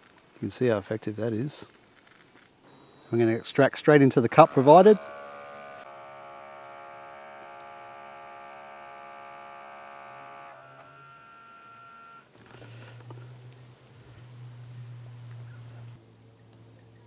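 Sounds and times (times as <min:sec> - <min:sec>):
espresso machine pump buzzing: 0:02.7 - 0:16.0.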